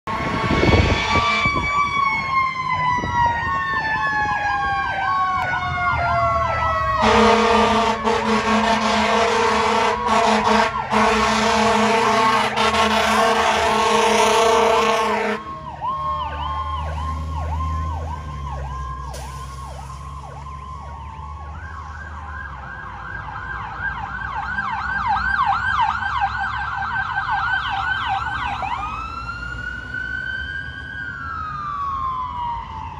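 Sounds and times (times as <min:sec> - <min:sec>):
fire engine air horns blaring: 0:00.0 - 0:03.7, 0:04.7 - 0:18.1, 0:18.8 - 0:22.4
siren wailing: 0:00.1 - 0:32.9
siren yelping: 0:00.1 - 0:32.9.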